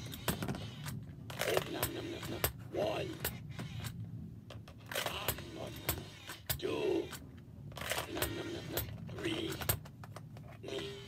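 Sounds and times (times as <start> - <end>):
toy recorded voice: 1.3 - 3.3, 5.0 - 7.2, 8.0 - 9.8, 10.6 - 11.0.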